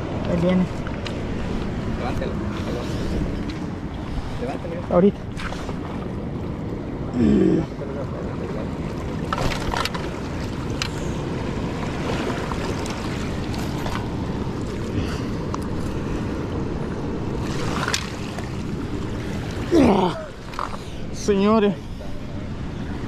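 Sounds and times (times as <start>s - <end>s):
wind on microphone: 0.0s - 6.4s.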